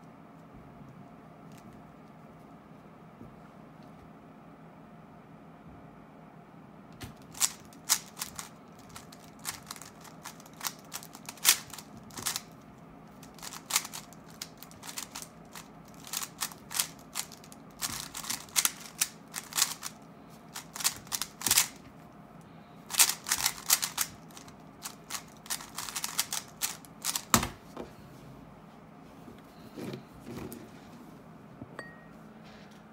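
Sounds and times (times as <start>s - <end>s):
puzzle cube layers clicking: 22.9s - 27.3s.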